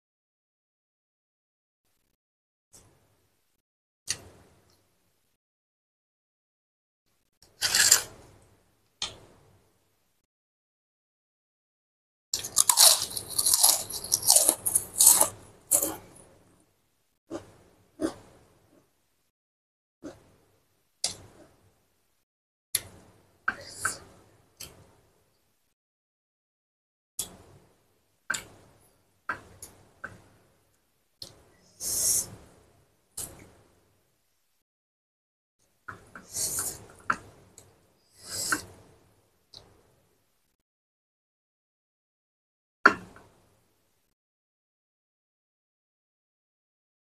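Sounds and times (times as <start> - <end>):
crunching prawn cracker: 12.4 - 16.0.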